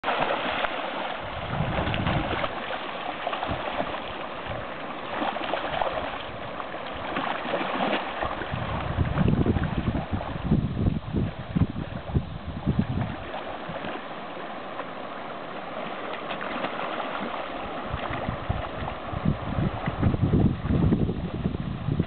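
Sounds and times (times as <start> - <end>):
fish splashing in water: 0.0 - 10.5, 15.8 - 19.1
stream rushing: 0.0 - 22.0.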